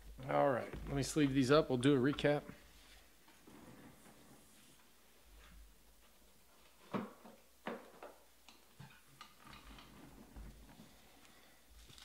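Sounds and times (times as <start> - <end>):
plastic sleeves rustling: 9.4 - 12.0.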